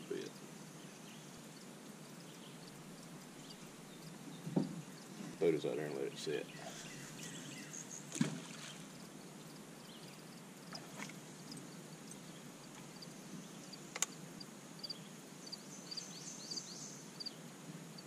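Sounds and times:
thump: 4.4s - 4.8s, 8.1s - 8.6s
sharp click: 13.9s - 14.1s.

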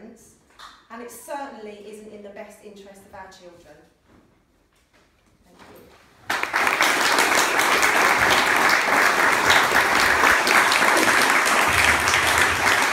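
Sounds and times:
audience applauding: 6.3s - 12.9s.

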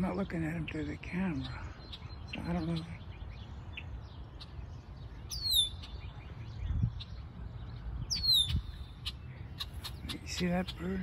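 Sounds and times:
faint bird chirps: 0.6s - 10.8s
blackbird whistled calls: 5.3s - 7.2s, 8.0s - 10.4s.

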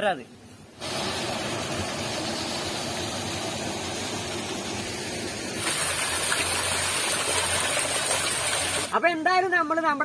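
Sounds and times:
water rushing through sluice gates: 5.6s - 9.0s.

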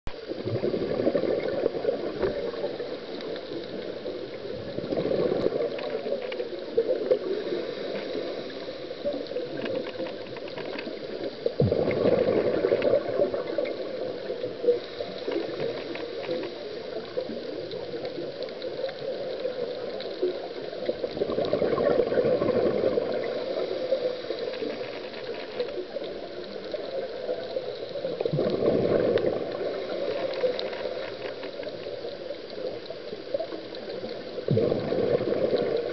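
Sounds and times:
underwater breath bubbles: 0.3s - 6.2s, 11.4s - 17.3s, 19.2s - 24.9s, 28.1s - 31.2s, 34.5s - 35.9s.

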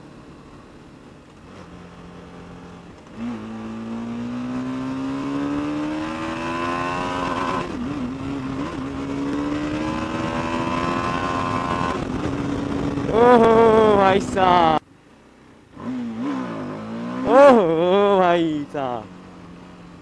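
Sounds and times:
motorcycle engine revving: 1.4s - 14.1s, 15.7s - 18.2s.

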